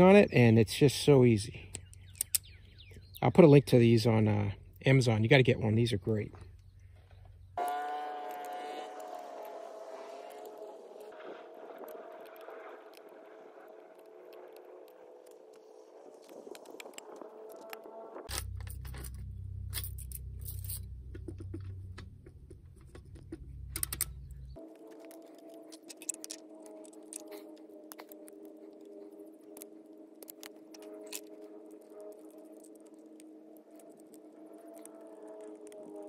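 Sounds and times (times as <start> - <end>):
hands handling plastic parts: 22.5 - 28.7.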